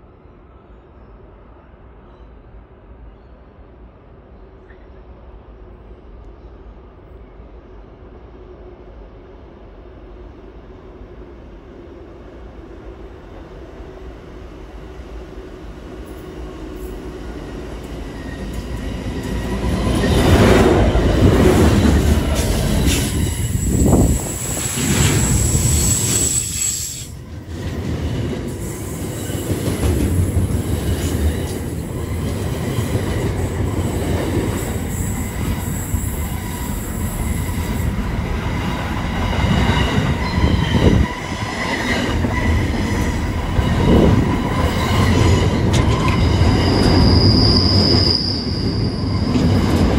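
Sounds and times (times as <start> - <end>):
freight train passing: 0.0 - 49.9
high-pitched wheel squealing: 22.8 - 27.2, 39.6 - 49.7.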